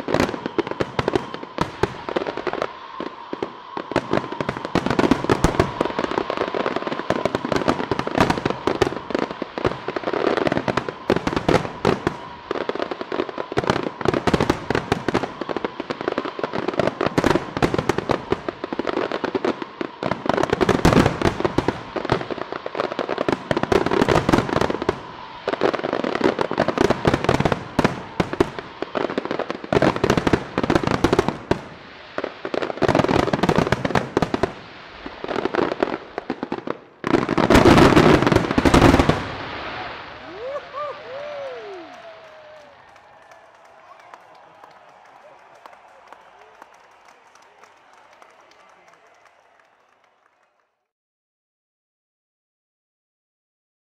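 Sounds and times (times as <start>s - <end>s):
fireworks bursting: 0.0s - 50.1s
fireworks crackling: 0.0s - 50.5s.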